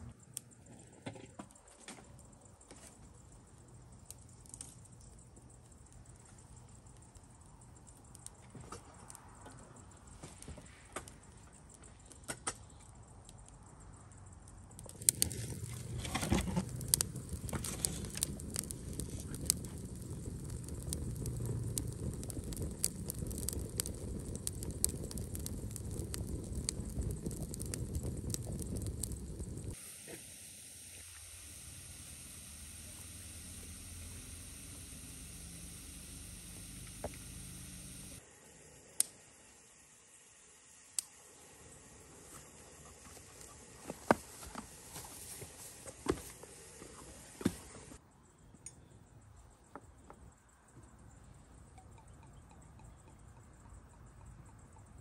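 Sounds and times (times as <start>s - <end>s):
food sizzling in hot oil: 15.0s - 38.2s.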